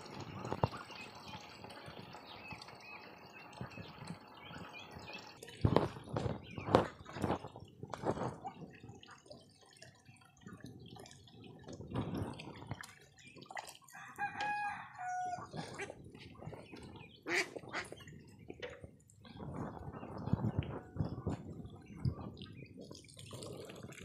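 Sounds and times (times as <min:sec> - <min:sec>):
hose water splashing into basin: 0:00.0 - 0:24.0
rooster crowing: 0:14.0 - 0:15.5.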